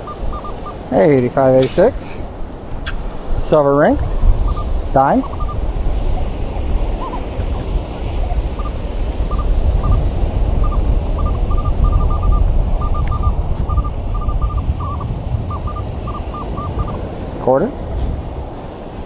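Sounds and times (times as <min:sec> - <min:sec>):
metal detector beeps: 0:00.0 - 0:00.8, 0:04.4 - 0:06.4, 0:08.2 - 0:17.0
wind on microphone: 0:00.0 - 0:19.0.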